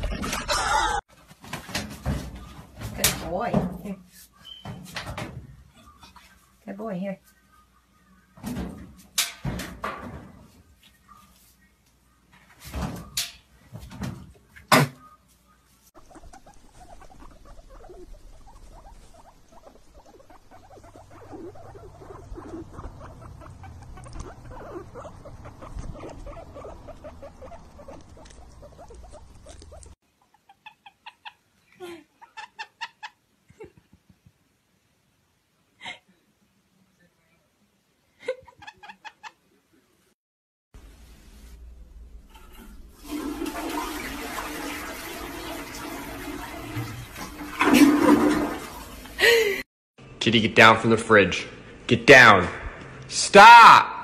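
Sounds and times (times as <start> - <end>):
guinea pig squeaking: 15.0 - 31.4, 32.2 - 33.2, 38.6 - 39.4
toilet flushing: 42.4 - 49.3.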